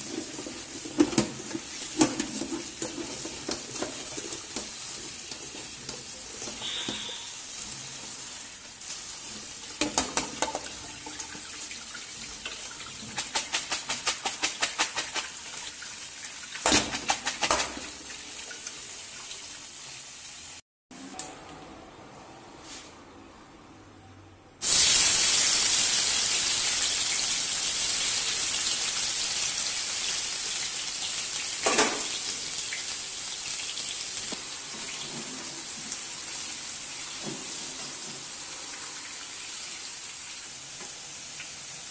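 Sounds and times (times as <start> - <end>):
tap water running: 0.0 - 20.6, 26.3 - 41.9.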